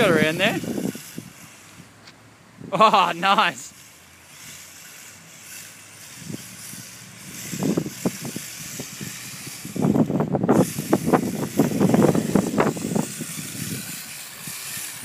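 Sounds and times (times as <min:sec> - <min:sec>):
wind buffeting microphone: 0:00.0 - 0:02.0, 0:06.0 - 0:15.0.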